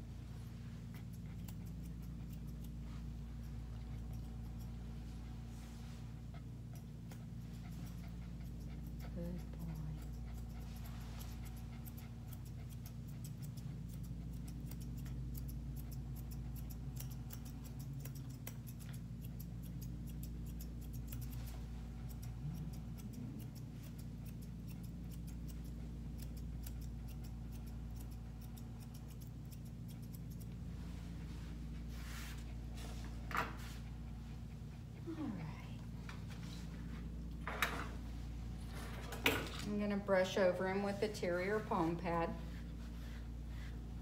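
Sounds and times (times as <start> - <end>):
low steady hum: 0.0 - 44.0
scissors snipping fur: 0.3 - 31.5.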